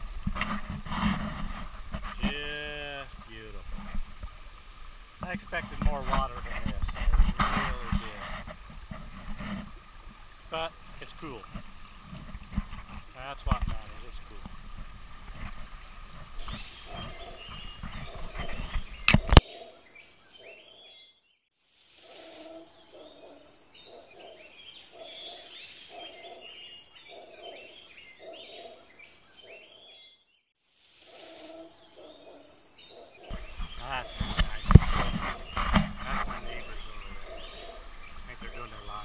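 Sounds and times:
microphone handling rumble: 0.0 - 4.4, 5.2 - 10.2, 10.9 - 19.4, 33.3 - 39.0
wind on microphone: 5.2 - 10.3, 11.4 - 19.4, 33.3 - 39.0
low animal call: 22.0 - 26.5, 31.1 - 39.0.

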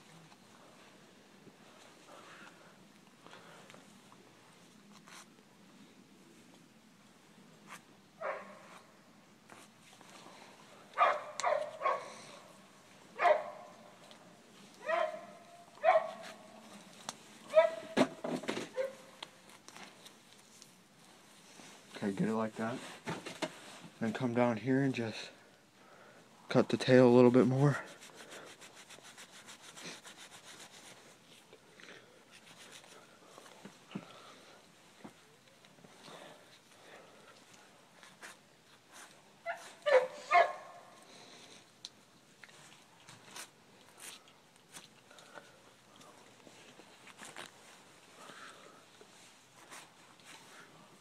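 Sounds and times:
dog barking: 8.2 - 8.7, 11.0 - 12.1, 13.2 - 13.8, 14.8 - 16.3, 17.5 - 18.0, 39.4 - 40.9
rubbing and scraping of fur: 13.6 - 24.0, 27.5 - 31.5, 32.3 - 33.8, 46.3 - 50.9.

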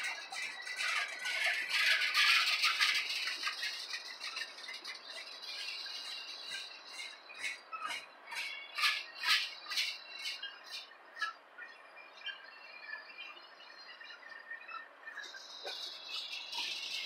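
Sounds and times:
freight train cars rattling on rails: 0.0 - 10.4.

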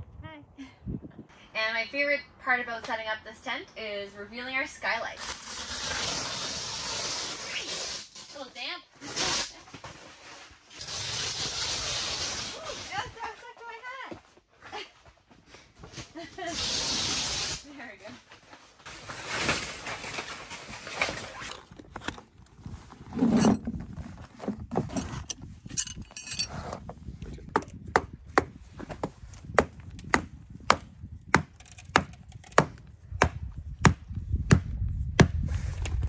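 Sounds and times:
hammer striking tent stakes: 29.6 - 35.3.

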